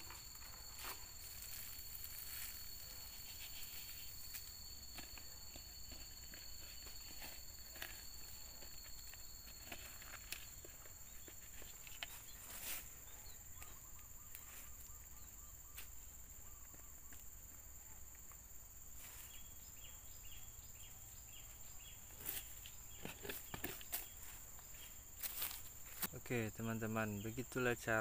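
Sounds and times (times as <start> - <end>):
soil scuffs and light knocks: 0.0 - 13.0
faint chirps: 0.0 - 28.0
high insect drone: 0.0 - 28.0.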